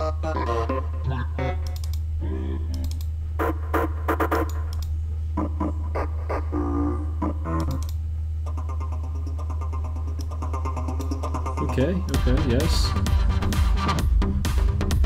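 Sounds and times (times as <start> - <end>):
steady low drone: 0.0 - 4.2, 5.1 - 7.9.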